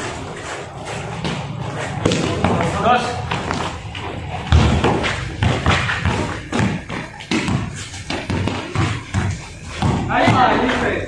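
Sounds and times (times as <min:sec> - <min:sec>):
basketball bouncing on concrete: 0:01.0 - 0:11.0.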